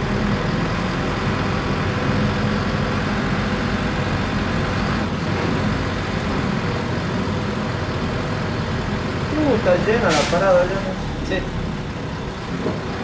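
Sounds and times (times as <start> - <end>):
bus engine humming: 0.0 - 13.0.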